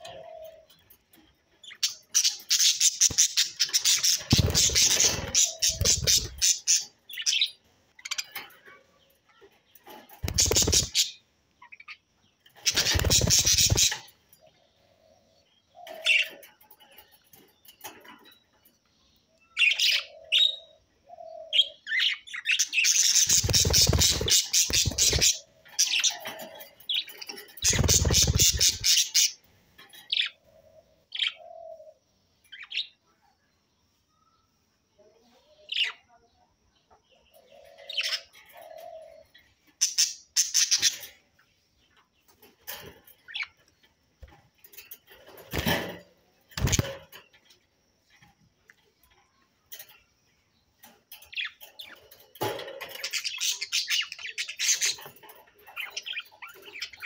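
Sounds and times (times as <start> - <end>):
budgerigars chirping: 1.8 - 6.9, 10.2 - 11.1, 22.6 - 26.4, 27.0 - 29.4.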